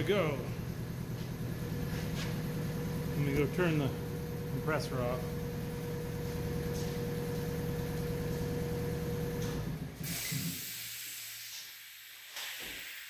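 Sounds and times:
air compressor running: 0:00.0 - 0:13.0
short hiss of air: 0:10.0 - 0:13.0.

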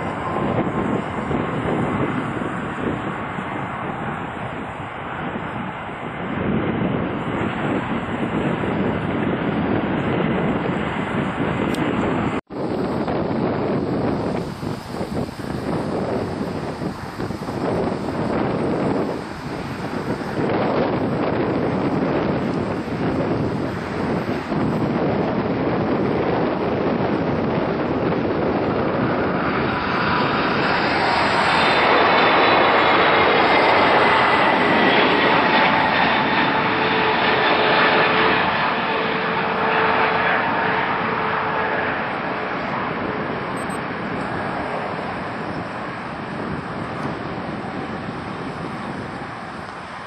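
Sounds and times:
jet airliner passing overhead: 0:00.0 - 0:50.0
whining engine tones: 0:13.0 - 0:50.0.

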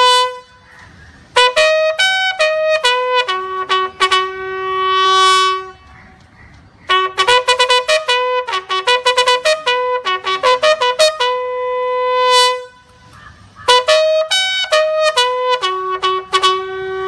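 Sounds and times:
bugle playing: 0:00.0 - 0:06.0, 0:06.9 - 0:17.0.

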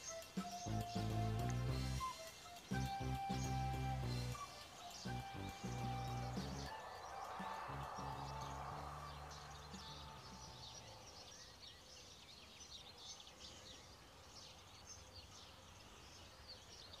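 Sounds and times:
background music: 0:00.0 - 0:11.2
small birds chirping: 0:00.0 - 0:17.0.

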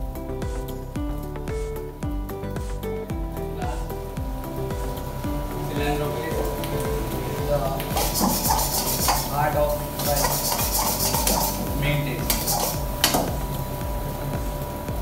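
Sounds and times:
metal spatula scraping a wok: 0:08.0 - 0:09.4, 0:10.0 - 0:11.6.

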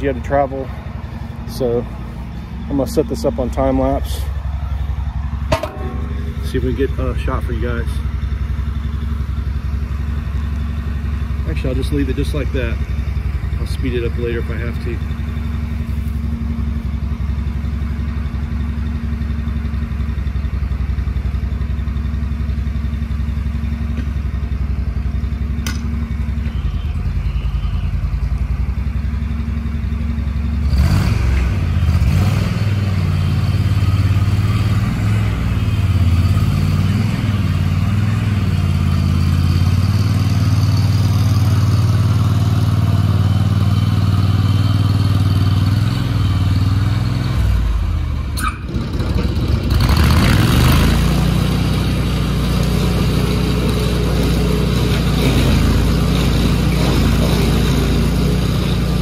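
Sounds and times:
stump grinder engine running: 0:00.0 - 0:26.7, 0:27.3 - 0:59.0
harsh clattering: 0:05.5 - 0:07.0.

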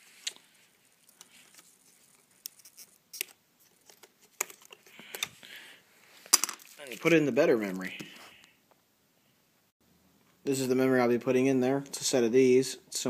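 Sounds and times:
faint handling noise: 0:06.0 - 0:08.8.

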